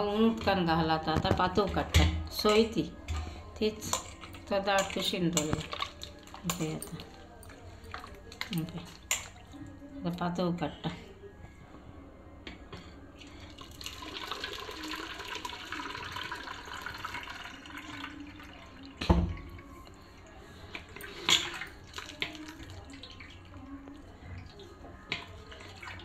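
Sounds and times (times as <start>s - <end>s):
water pouring and splashing: 3.8s - 7.1s, 13.5s - 19.5s, 20.7s - 26.0s.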